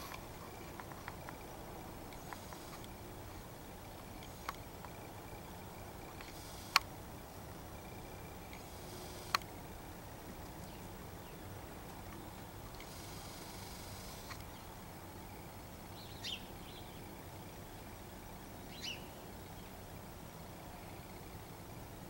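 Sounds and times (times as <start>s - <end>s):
faint ticks: 0.0s - 5.4s, 6.0s - 6.9s, 7.8s - 9.6s, 11.8s - 14.6s
sharp clicks: 6.1s - 6.9s, 8.5s - 9.5s.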